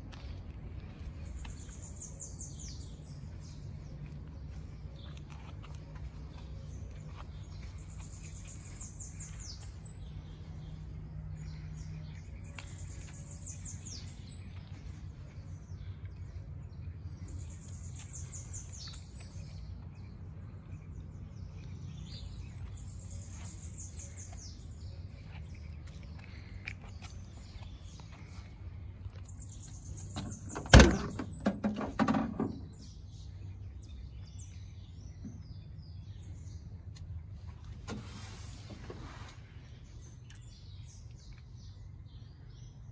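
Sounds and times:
bird chirping: 0:00.8 - 0:37.6
car door thunk with rattle: 0:30.1 - 0:32.8.

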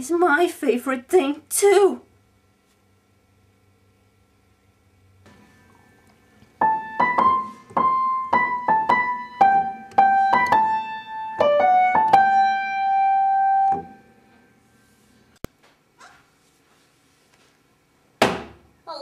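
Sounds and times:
piano melody: 0:06.6 - 0:14.5.

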